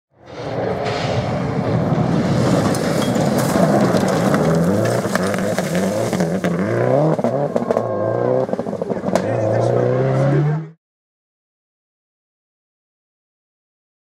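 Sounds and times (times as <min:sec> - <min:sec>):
rally car engine revving: 0:00.4 - 0:10.8
gravel cracking from tyres: 0:01.8 - 0:09.4.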